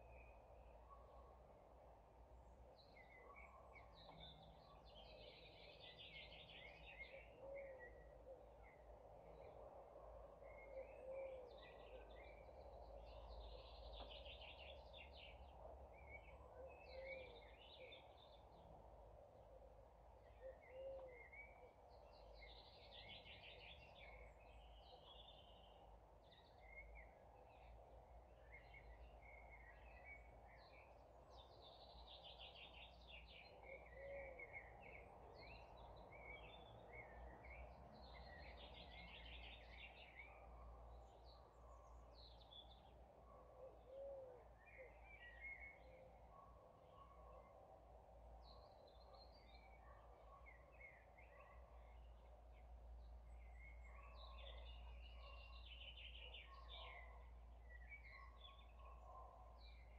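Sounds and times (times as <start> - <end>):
small birds trilling and chirping: 0.0 - 59.9.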